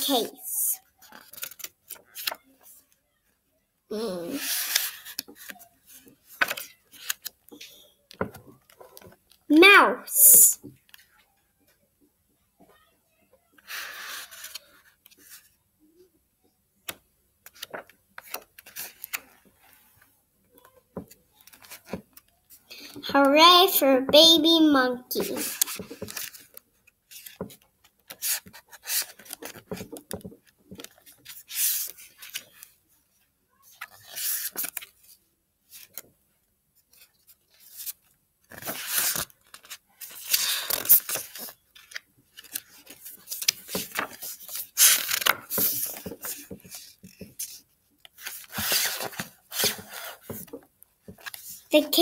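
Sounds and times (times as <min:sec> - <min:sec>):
book pages flipping: 0:00.8 - 0:03.0, 0:04.0 - 0:09.4, 0:13.6 - 0:15.6, 0:16.8 - 0:23.1, 0:25.2 - 0:36.1, 0:36.8 - 0:52.0.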